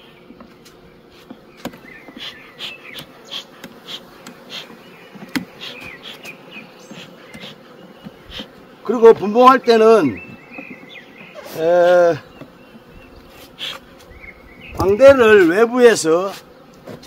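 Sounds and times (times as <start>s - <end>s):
bees humming: 0.0s - 17.0s
hive tool clicking on wood: 0.2s - 9.3s, 10.2s - 11.4s
smoker bellows puffs: 0.4s - 8.7s, 13.2s - 14.2s.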